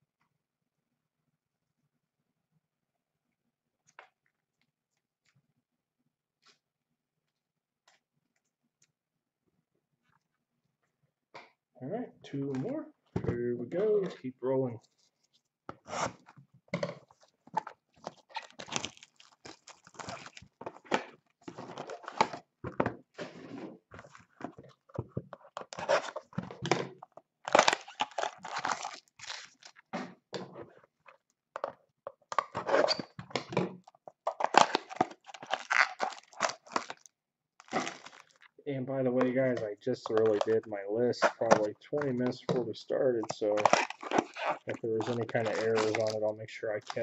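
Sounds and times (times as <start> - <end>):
plastic wrap crinkling and tearing: 17.1 - 22.4, 27.4 - 29.9, 33.8 - 38.6, 41.2 - 47.0.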